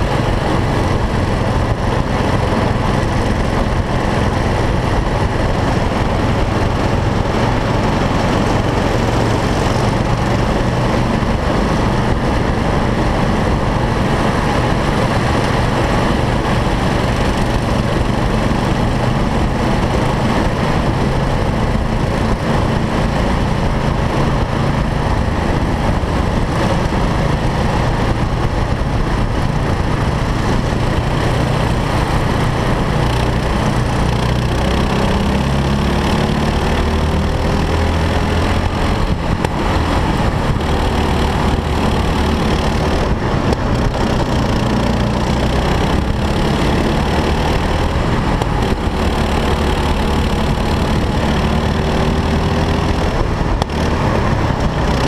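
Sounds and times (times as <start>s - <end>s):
kart engine drone: 0.0s - 55.0s.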